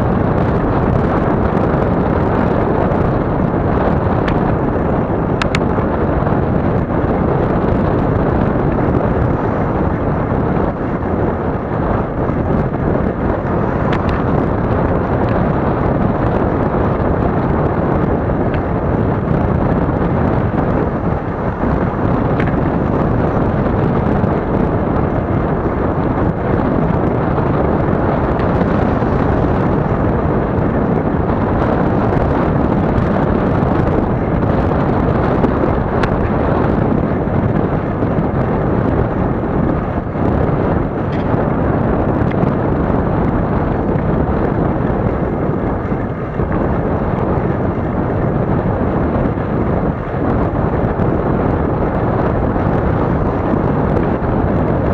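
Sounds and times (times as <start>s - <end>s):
wind rumble on microphone: 0.0s - 54.9s.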